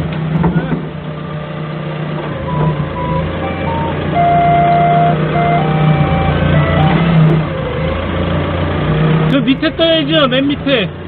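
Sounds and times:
forklift engine running: 0.0s - 11.0s
plinking tone melody: 2.5s - 7.3s.

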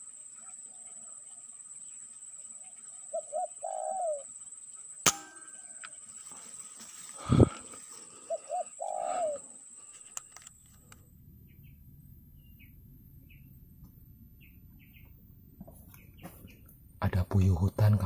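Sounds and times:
small birds chirping: 0.0s - 18.0s
dove cooing: 3.1s - 4.3s, 7.2s - 9.6s.

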